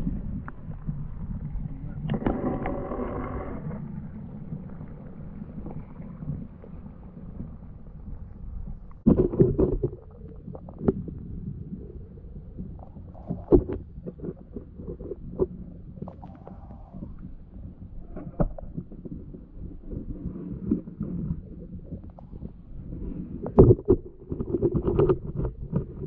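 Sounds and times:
muffled underwater river rumble: 0:00.0 - 0:26.0.

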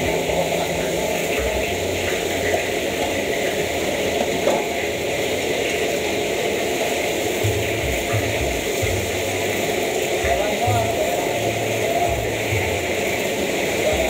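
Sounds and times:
gas burner running: 0:00.0 - 0:14.0
oil deep-frying bubbling hiss: 0:00.0 - 0:14.0.

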